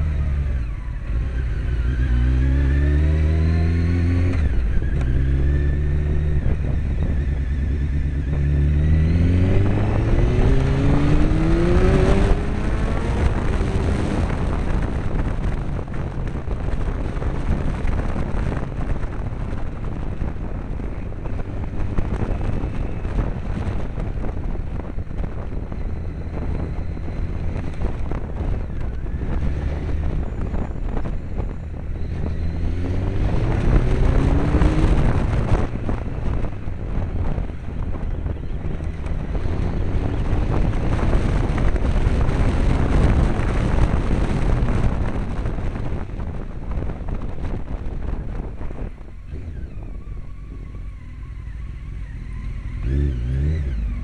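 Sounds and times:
motorcycle engine revving: 0:00.0 - 0:54.0
wind noise at speed: 0:00.0 - 0:54.0.

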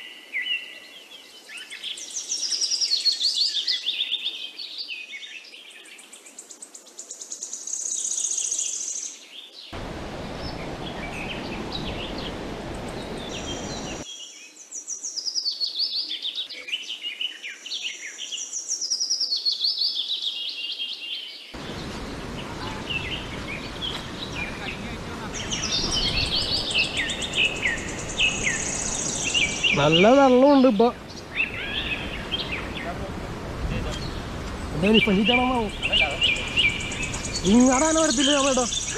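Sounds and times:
high insect buzz: 0:00.0 - 0:32.5
birds chirping: 0:00.0 - 0:38.9
low rushing noise: 0:09.8 - 0:14.0.

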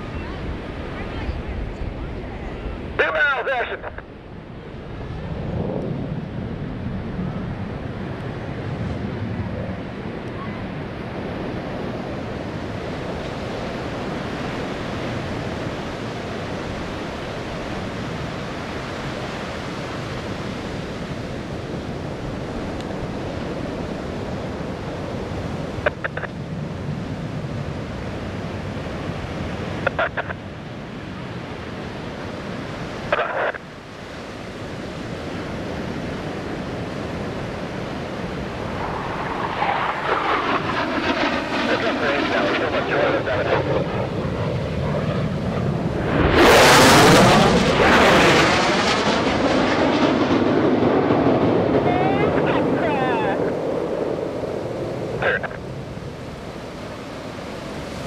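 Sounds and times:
ocean surf breaking: 0:43.8 - 0:58.0.

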